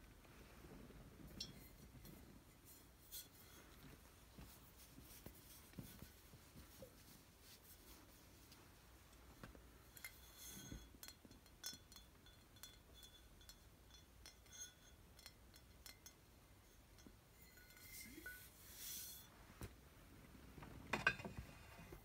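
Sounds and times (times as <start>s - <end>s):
taps on glass bottles: 10.0s - 16.3s.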